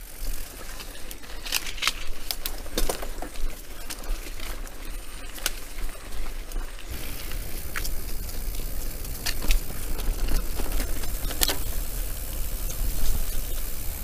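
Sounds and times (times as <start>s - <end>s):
bike clicks and rattles: 0.0s - 14.0s
steady low rumble: 5.1s - 14.0s.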